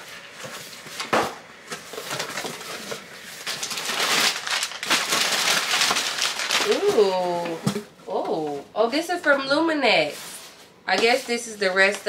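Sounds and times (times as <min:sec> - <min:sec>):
packaging rustling and crinkling: 0:00.0 - 0:07.8.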